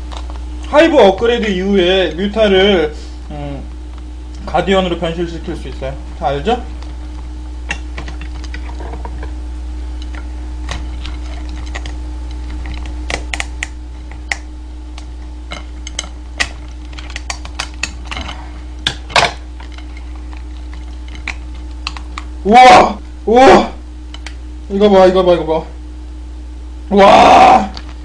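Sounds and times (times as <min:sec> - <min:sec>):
crab shell cracking: 0:00.0 - 0:00.7, 0:06.7 - 0:22.4, 0:24.0 - 0:24.5, 0:27.6 - 0:28.0
low hum: 0:00.0 - 0:28.0
scissors snipping crab shell: 0:10.0 - 0:22.3.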